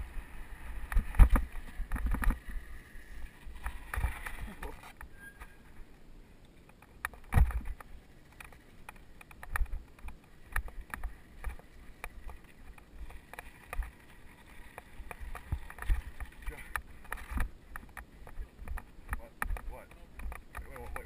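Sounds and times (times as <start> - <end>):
bikes clicking and knocking: 0.0 - 21.0.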